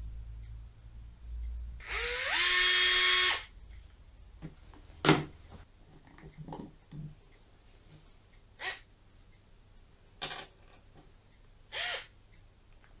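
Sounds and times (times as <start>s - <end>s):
electric screwdriver motor whining: 1.8s - 3.5s, 11.7s - 12.1s.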